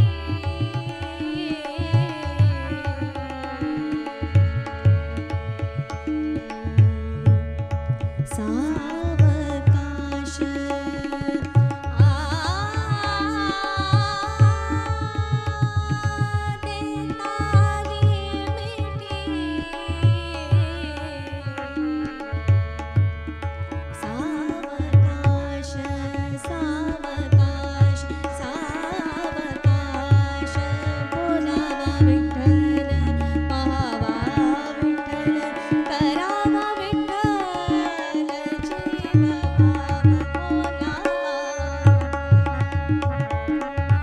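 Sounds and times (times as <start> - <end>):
woman singing: 0.0 - 7.4, 8.2 - 22.7, 23.9 - 43.0
tabla drumming: 0.0 - 44.0
harmonium chords: 11.8 - 44.0.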